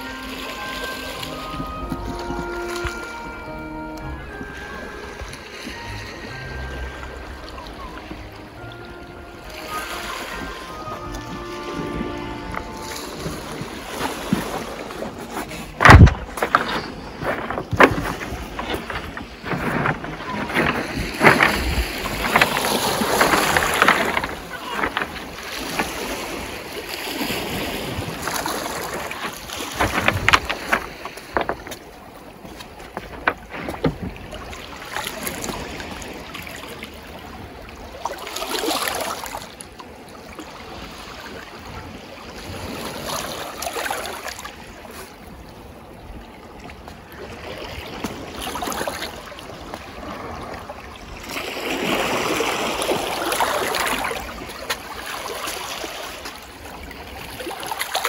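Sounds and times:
waves lapping on pebble shore: 0.0 - 58.0
wind on microphone: 9.4 - 32.0.

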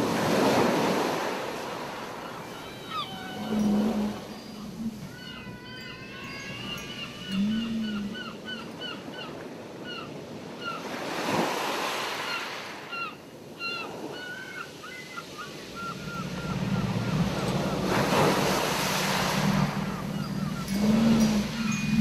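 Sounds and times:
gulls calling: 0.0 - 11.0, 12.0 - 22.0
ocean surf on beach: 0.0 - 22.0
low moaning whale calls: 2.1 - 9.2, 15.6 - 22.0.

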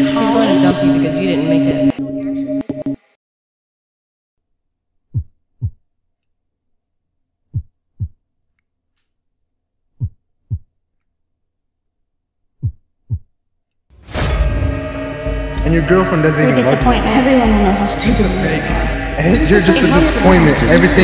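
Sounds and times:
heartbeat: 5.1 - 5.8, 7.5 - 8.2, 10.0 - 10.7, 12.6 - 13.3.

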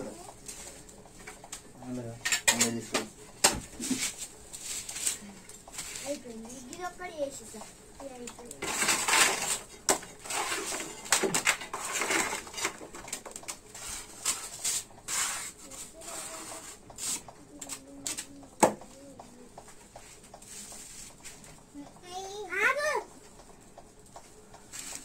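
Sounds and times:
scraping on ceramic tiles: 8.6 - 18.2.

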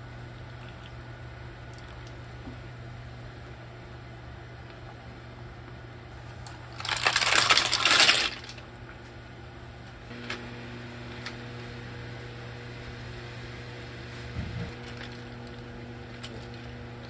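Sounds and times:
clam shells clattering in a pan: 6.8 - 8.6.

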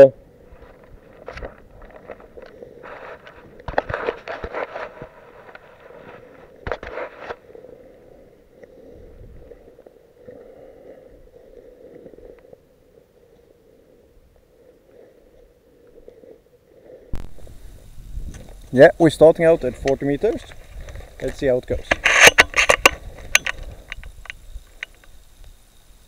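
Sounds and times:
clicks and scrapes: 0.6 - 7.4, 19.8 - 25.1.

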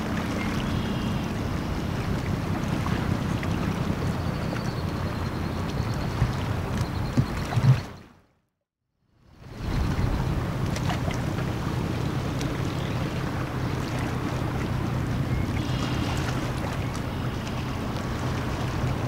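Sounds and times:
ship diesel engine drone: 0.0 - 6.0, 10.1 - 19.0
wind on microphone: 9.4 - 17.0.

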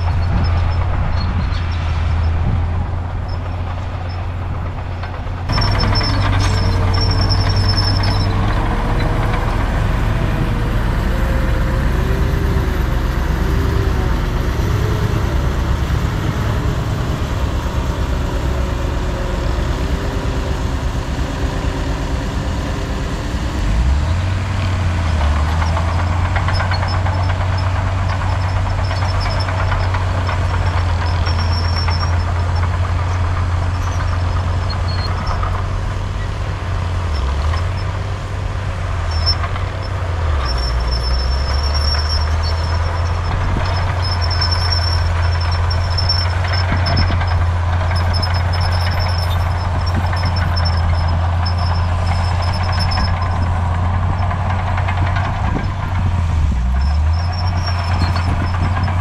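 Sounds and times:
deep diesel engine drone: 0.0 - 59.0.

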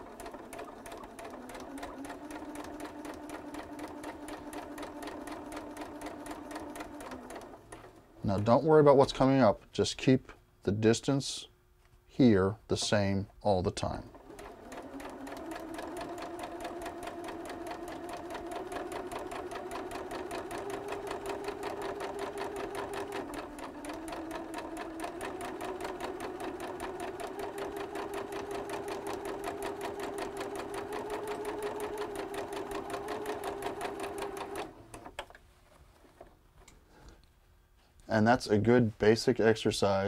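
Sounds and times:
electric sewing machine running: 0.0 - 8.1, 14.1 - 35.2.

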